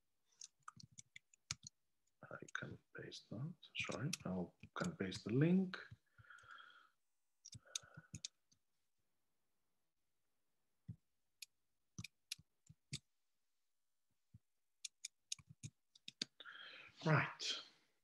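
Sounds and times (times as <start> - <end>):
mouse and keyboard clicks: 11.4 - 13.1, 14.8 - 16.3.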